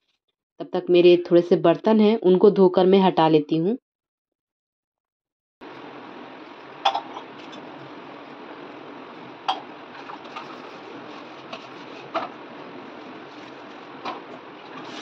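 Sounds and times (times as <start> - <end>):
running tap water: 5.6 - 13.2.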